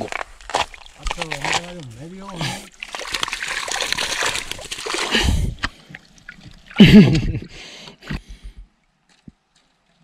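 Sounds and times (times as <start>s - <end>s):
water splashing and dripping: 0.1s - 7.3s.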